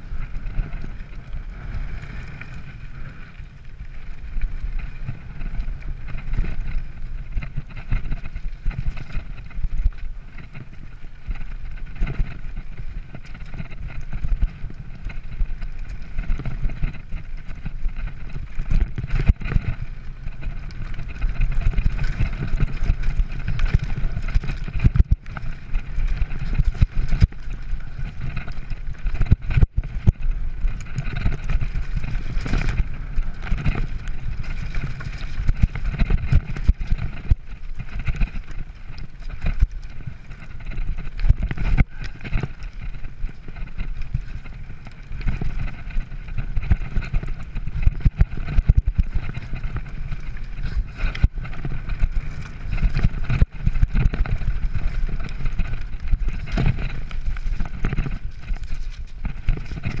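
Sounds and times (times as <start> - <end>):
bike rattling over bumps: 0.0 - 60.0
tyres rolling over gravel: 0.0 - 60.0
wind on microphone: 0.0 - 60.0.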